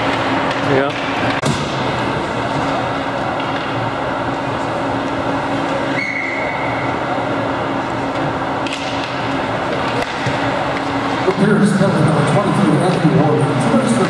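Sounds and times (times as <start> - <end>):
ice hockey arena din: 0.0 - 14.0.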